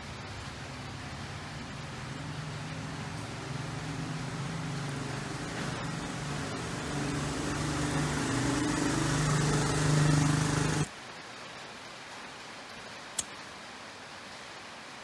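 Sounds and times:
low hiss: 0.0 - 15.0
loud motor-like hum with rushing: 1.4 - 10.9.

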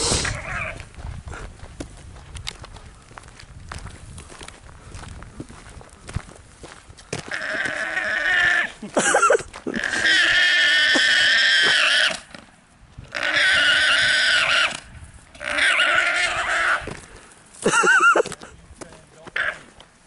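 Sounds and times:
llama calling: 0.0 - 0.8, 7.3 - 8.9, 13.1 - 16.9, 19.2 - 19.7
llama squeal: 0.1 - 0.8, 13.1 - 14.8, 15.4 - 16.9.

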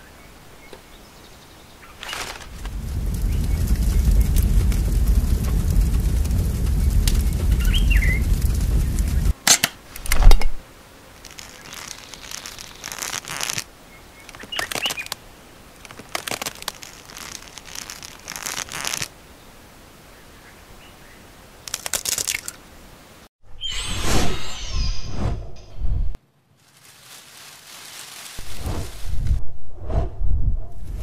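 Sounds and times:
bird chirping: 0.0 - 9.3
crackling and rustling: 1.8 - 19.2, 21.6 - 22.6, 26.5 - 29.4
deep rumbling whoosh: 2.4 - 9.4, 28.4 - 31.0.

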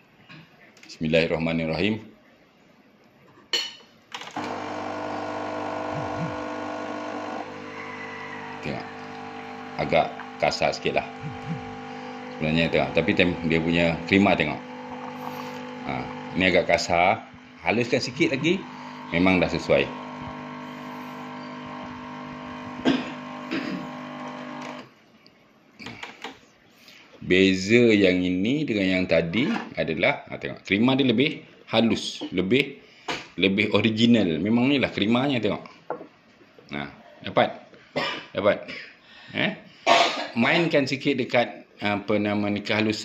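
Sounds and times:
espresso pump humming: 4.4 - 24.8.

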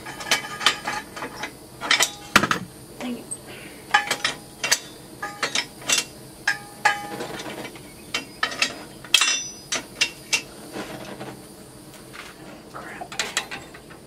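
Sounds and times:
steel tools clinking together: 3.9 - 10.5.

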